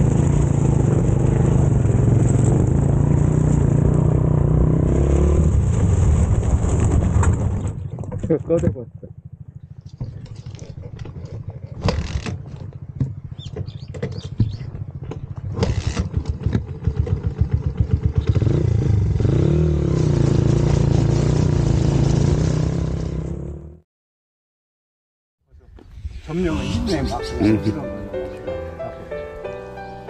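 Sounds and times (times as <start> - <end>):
motorcycle engine idling and revving: 0.0 - 23.8.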